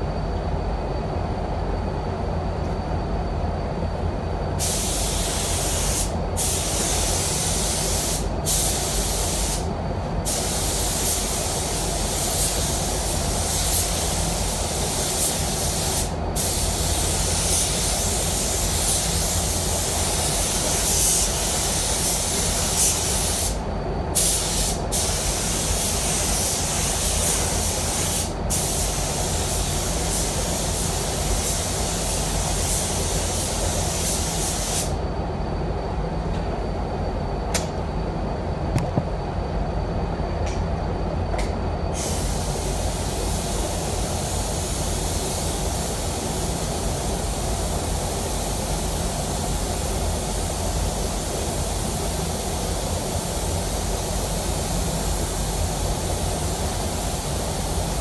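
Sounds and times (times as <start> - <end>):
steady low hum: 0.0 - 58.0
spray gun hissing: 4.6 - 23.6, 24.2 - 35.0, 42.0 - 58.0.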